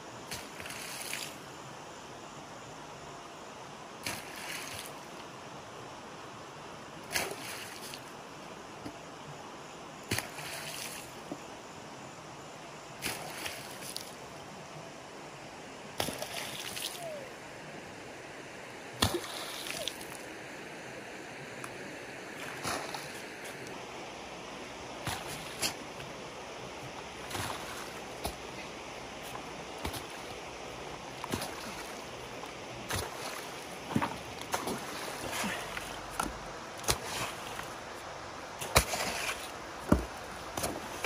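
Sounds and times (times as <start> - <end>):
stream rushing: 0.0 - 41.0
hoe and shovel digging wet earth: 0.2 - 1.4, 4.0 - 5.0, 7.1 - 8.1, 10.1 - 11.2, 13.0 - 14.2, 16.0 - 17.2, 19.0 - 20.2, 22.4 - 23.7, 25.0 - 26.1, 27.0 - 41.0
dirt slopping into water: 10.1 - 11.1, 16.0 - 17.0, 19.0 - 20.2, 22.4 - 23.2, 25.0 - 25.8, 27.2 - 30.4, 31.0 - 37.8, 38.6 - 41.0.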